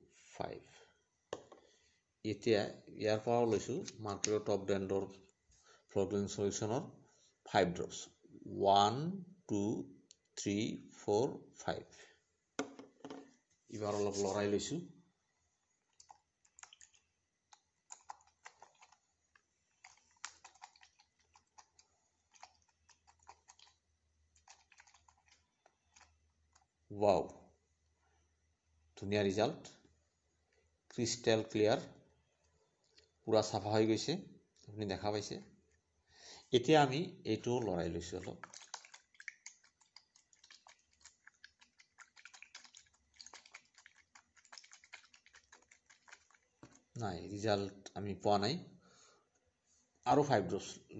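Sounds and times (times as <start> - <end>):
plastic cup clicking on wooden table: 12.6 - 13.3.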